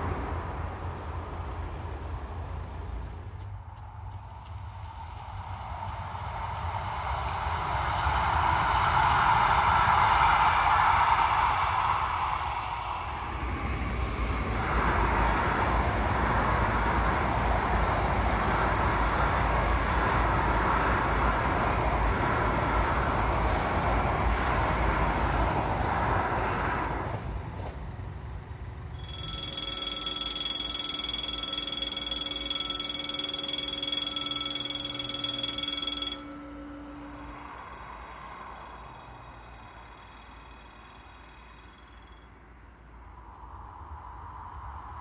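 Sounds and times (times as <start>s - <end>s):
train passing rumble: 0.0s - 45.0s
level-crossing warning bell: 14.0s - 23.6s, 28.4s - 43.1s.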